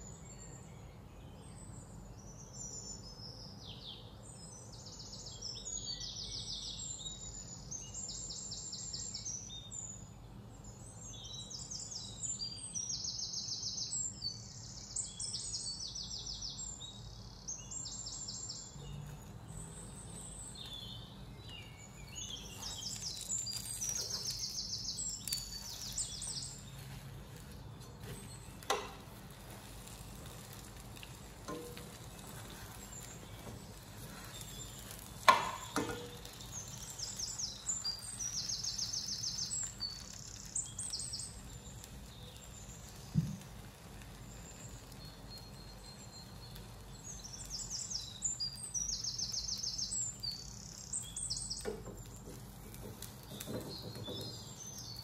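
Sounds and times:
birds chirping: 0:00.0 - 0:55.0
sharp knocks: 0:35.3 - 0:36.2.

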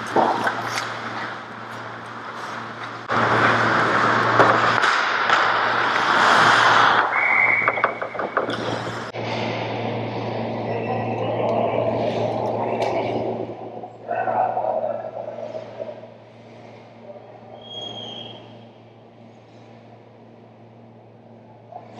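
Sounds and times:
loud wash of noise: 0:03.1 - 0:08.0
steady high tone: 0:09.2 - 0:19.2.

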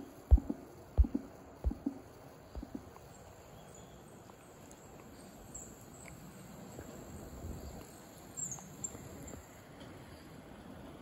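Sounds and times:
outdoor background noise: 0:00.0 - 0:11.0.

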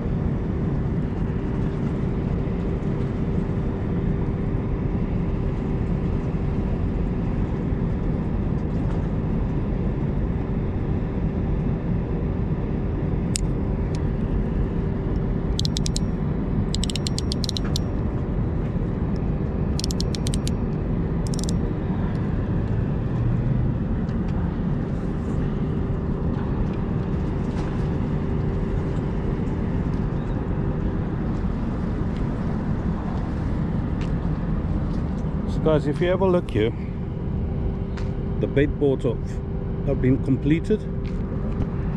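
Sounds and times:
constant hum: 0:00.0 - 0:41.9
harbour low rumble: 0:00.0 - 0:41.9
sharp high clicks: 0:15.5 - 0:17.9, 0:19.8 - 0:20.6, 0:21.3 - 0:21.6.

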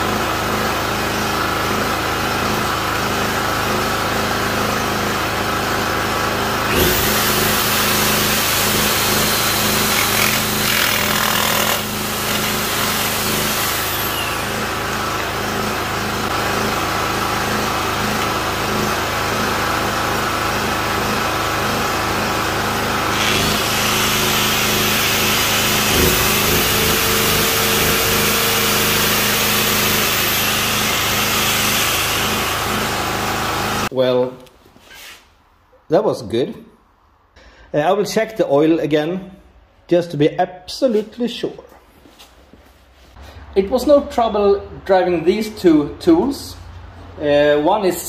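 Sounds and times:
electric jigsaw cutting wood: 0:00.0 - 0:33.9
petrol generator running: 0:00.0 - 0:33.9
electric angle grinder running: 0:00.3 - 0:33.9.

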